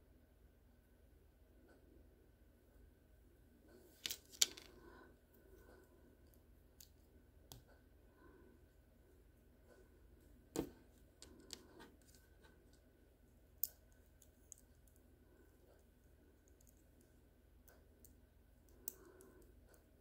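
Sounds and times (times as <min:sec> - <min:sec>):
plastic pieces clicking together: 0:04.0 - 0:04.7.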